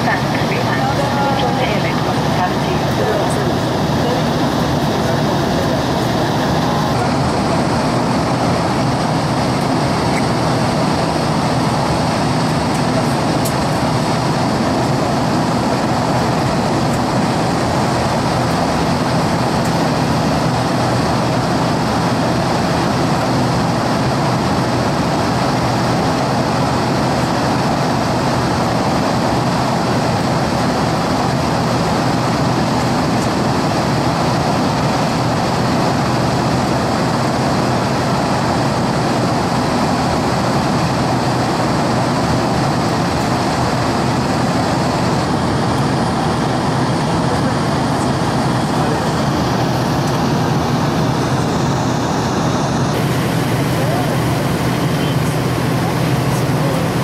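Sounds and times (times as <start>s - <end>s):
airliner cabin engine rush: 0.0s - 57.0s
low drone: 0.0s - 57.0s.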